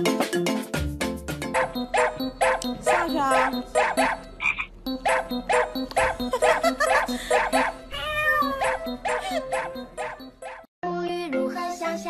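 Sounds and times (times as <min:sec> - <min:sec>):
music with bouncy beat: 0:00.0 - 0:10.7.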